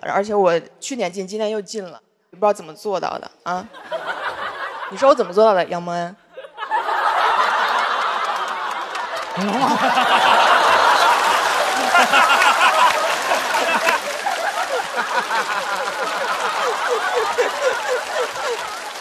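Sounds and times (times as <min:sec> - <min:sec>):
audience laughing: 0:03.7 - 0:05.3, 0:06.4 - 0:19.0.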